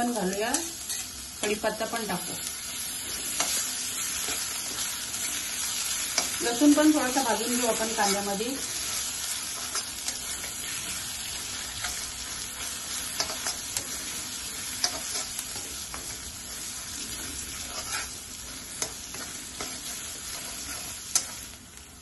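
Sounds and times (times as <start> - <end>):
vegetables sizzling in hot oil: 0.0 - 22.0
metal spatula scraping pan: 17.0 - 21.4.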